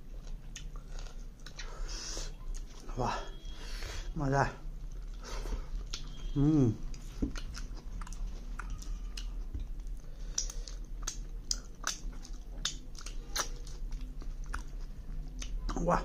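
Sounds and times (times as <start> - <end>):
chewing mouth clicks: 7.0 - 15.8.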